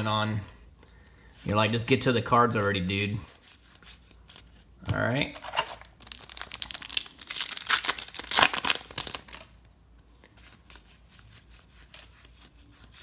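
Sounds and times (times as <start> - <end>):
wrapper tearing and crinkling: 5.4 - 9.6.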